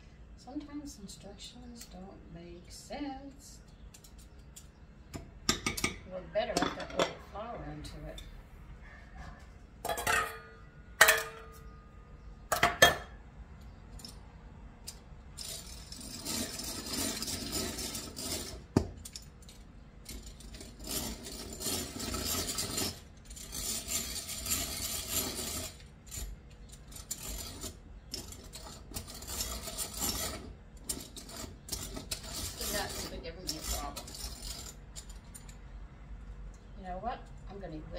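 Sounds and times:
egg beater rasping churn: 15.4s - 18.8s, 20.3s - 34.8s.

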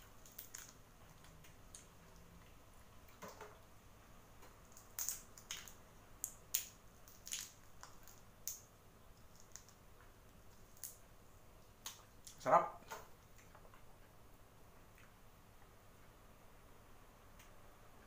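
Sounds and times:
shrimp shell crackling: 0.1s - 1.9s, 4.6s - 11.0s.

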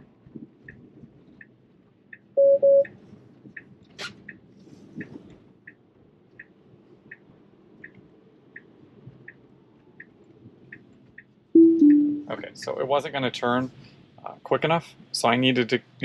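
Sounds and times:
turn signal ticking: 0.0s - 12.3s
road noise in car cabin: 0.0s - 16.0s
short chime beeps: 2.4s - 2.8s, 11.6s - 12.3s.

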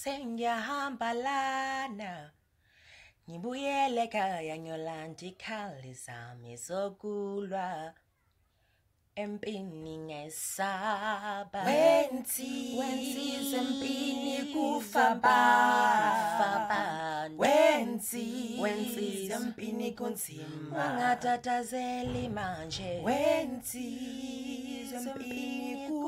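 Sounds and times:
man singing a cappella harmony: 11.0s - 26.0s.

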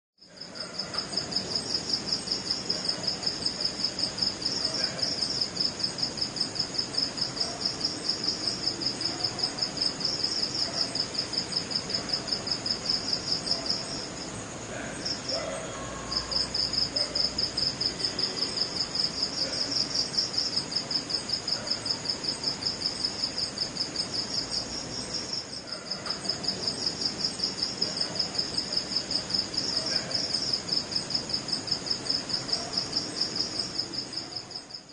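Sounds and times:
crickets chirping: 0.2s - 34.9s.

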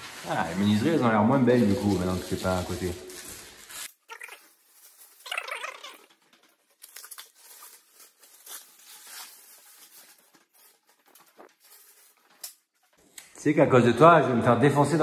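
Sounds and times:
tape and film tearing and crinkling: 0.0s - 13.0s.

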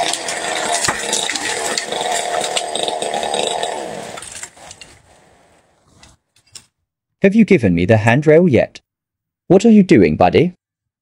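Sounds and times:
chainsaw running at high revs: 0.0s - 4.2s.

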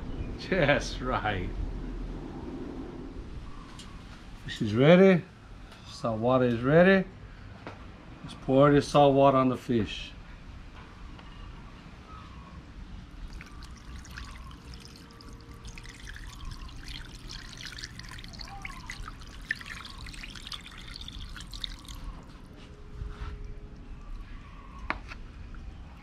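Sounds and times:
brine pouring and splashing: 13.2s - 22.6s.

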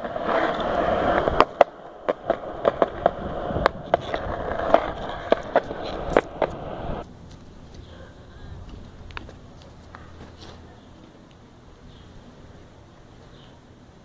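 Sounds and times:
wheels clicking over cracks: 0.0s - 7.9s
skateboard wheels rolling on concrete: 0.0s - 14.0s.

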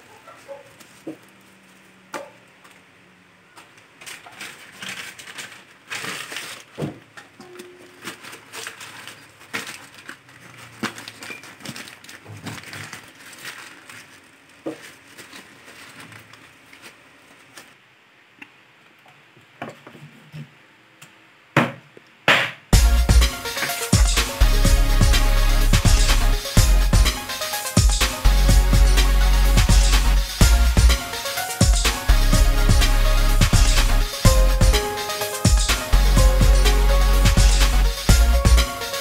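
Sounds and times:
plastic bags crinkling: 4.0s - 17.8s.

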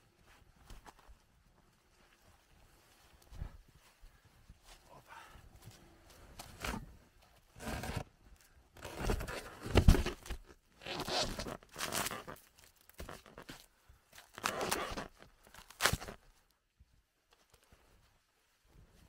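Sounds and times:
crunching snow: 8.8s - 16.4s
log thumping into sled: 9.0s - 10.5s.

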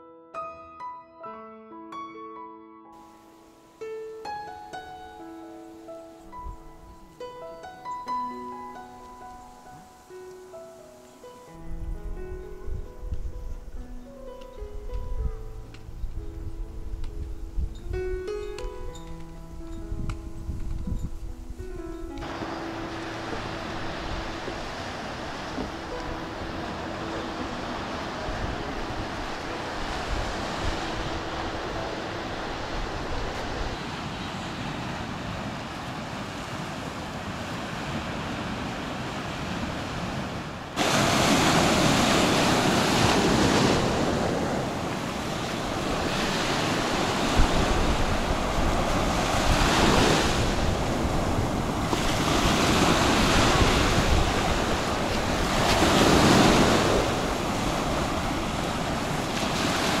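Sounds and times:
wind on microphone: 11.6s - 60.0s
waves washing up a beach: 22.2s - 60.0s.

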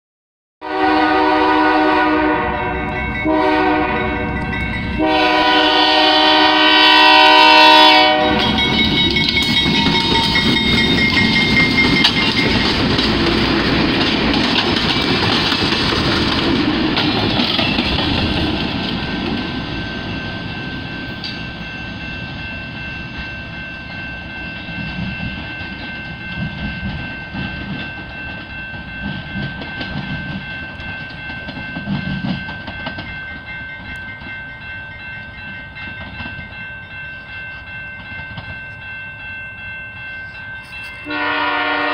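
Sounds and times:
locomotive air horn blasts: 0.6s - 4.4s, 5.0s - 8.7s, 41.0s - 41.9s
fast-ringing bell: 2.6s - 3.3s, 4.0s - 5.0s, 8.2s - 13.3s, 19.5s - 41.1s
wheels clattering over rails: 8.4s - 19.6s.

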